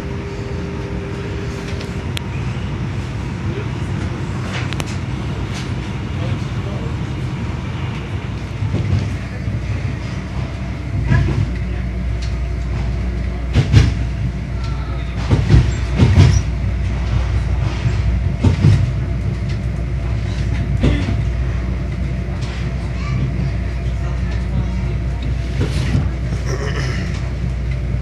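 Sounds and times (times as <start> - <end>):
train wheels rumbling on track: 0.0 - 28.0.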